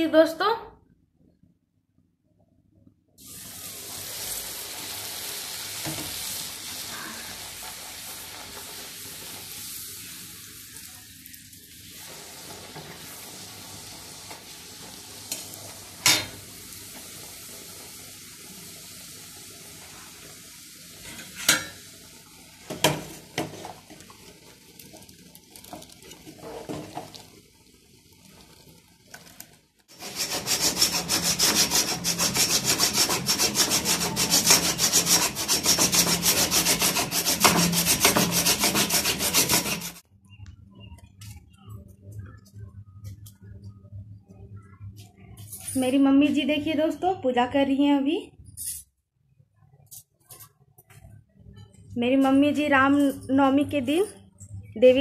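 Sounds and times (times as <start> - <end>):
food deep-frying in hot oil: 3.2 - 40.0
saw rasping through bamboo: 29.9 - 40.0.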